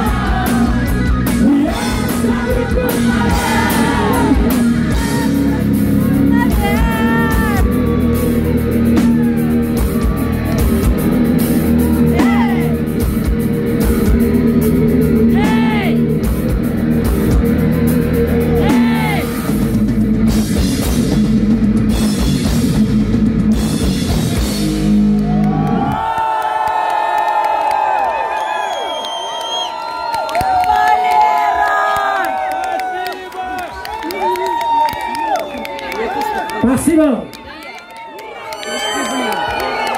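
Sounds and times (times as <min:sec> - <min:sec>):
heavy metal band playing live: 0:00.0 - 0:25.9.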